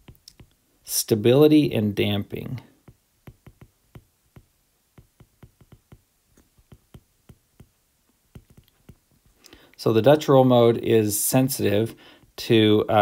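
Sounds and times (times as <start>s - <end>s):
stylus tapping on glass screen: 0.0s - 0.6s, 2.8s - 9.4s.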